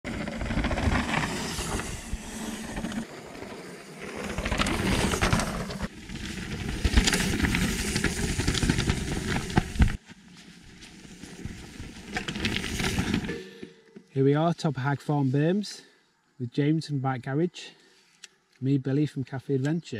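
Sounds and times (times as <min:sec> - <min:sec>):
bike tyres on rough trail: 0:00.0 - 0:14.2.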